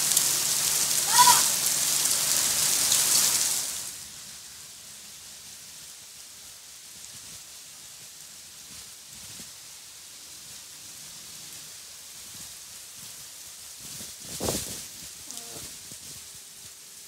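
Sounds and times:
rain falling on street and rooftops: 0.0s - 17.0s
short call: 15.3s - 15.7s.

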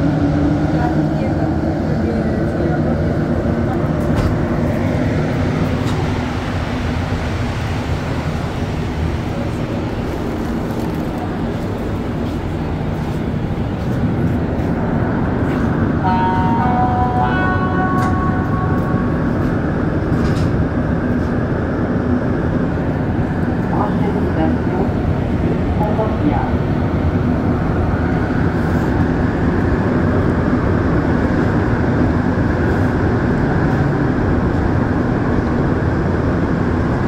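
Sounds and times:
train running rumble: 0.0s - 37.0s.

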